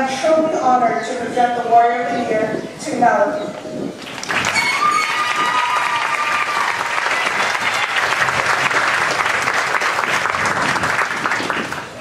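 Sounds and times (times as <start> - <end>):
audience applauding: 4.0 - 12.0
high-pitched cheer: 4.3 - 8.9.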